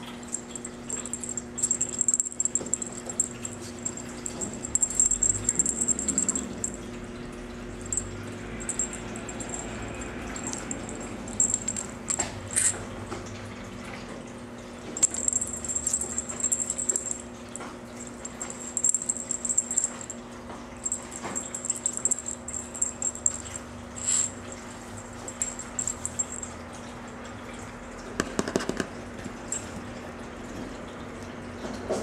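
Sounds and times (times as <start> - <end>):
steady low hum: 0.0 - 28.0
cat toy rattling: 0.3 - 6.9, 7.8 - 12.9, 15.0 - 20.2, 20.8 - 26.6.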